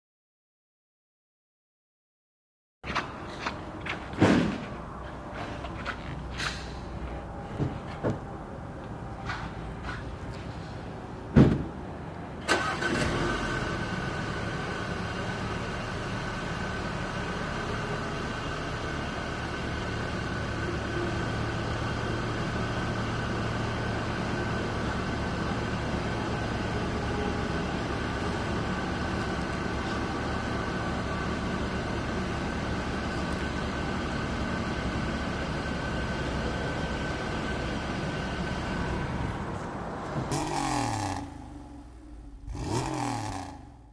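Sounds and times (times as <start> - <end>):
car engine starting and idling: 12.3 - 43.9.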